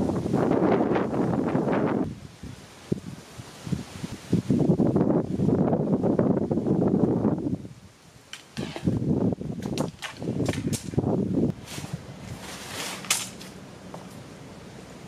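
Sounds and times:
tent poles clacking: 8.3s - 9.0s, 9.6s - 14.2s
tent fabric rustling: 11.6s - 13.6s.

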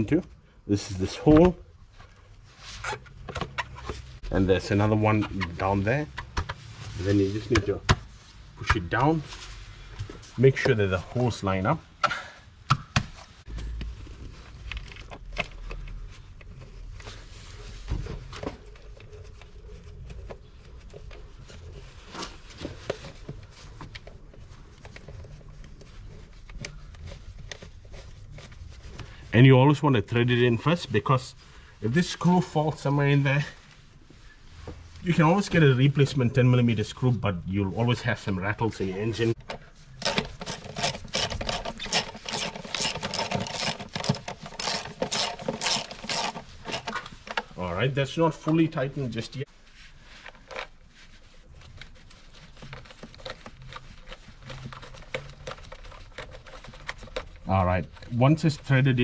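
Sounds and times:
hand ratchet clicking: 40.0s - 47.0s.

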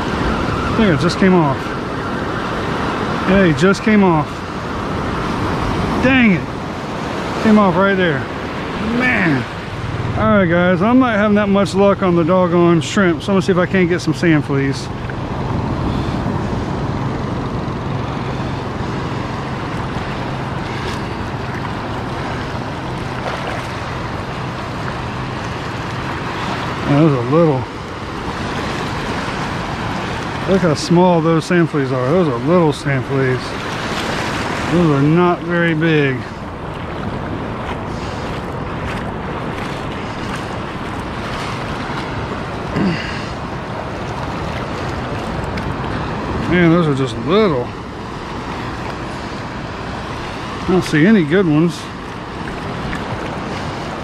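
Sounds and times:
shallow surf washing over sand: 0.0s - 54.0s
wind rumbling on microphone: 0.0s - 54.0s
wind on microphone: 8.2s - 12.1s, 35.9s - 46.7s
short low grunt: 42.7s - 43.4s.

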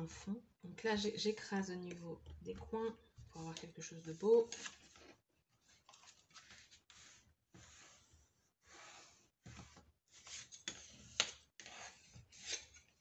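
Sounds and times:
hands rubbing paper on cardboard: 6.4s - 12.6s.

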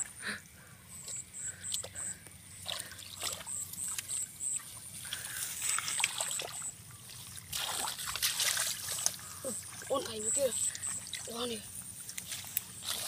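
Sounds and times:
hands splashing in muddy water: 7.2s - 9.2s.

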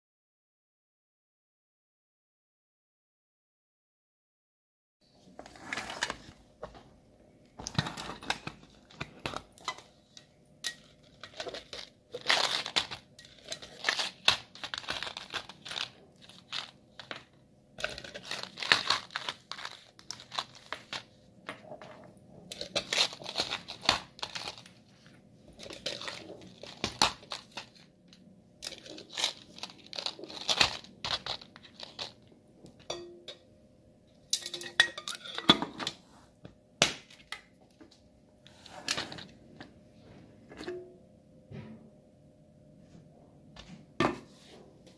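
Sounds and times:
packaging crinkling and tearing: 10.9s - 21.8s, 22.4s - 28.0s, 28.6s - 32.3s.

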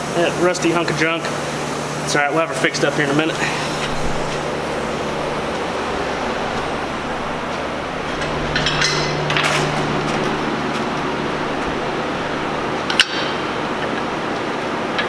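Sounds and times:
low shop hum: 0.0s - 15.0s
metallic clinks and rattles: 3.9s - 13.0s.

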